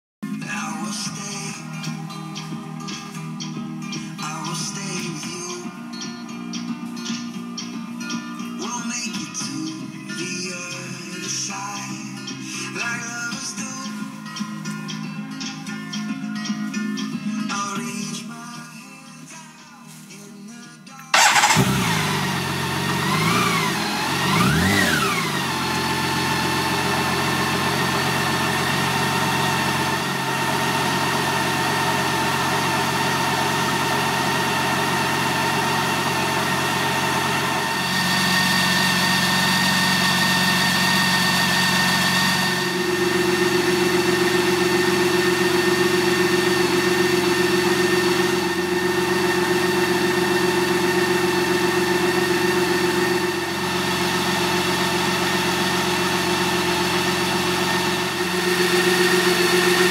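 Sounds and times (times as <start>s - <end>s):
engine throttle blips: 21.1s - 59.9s
motorcycle engine starting and idling: 21.1s - 59.9s.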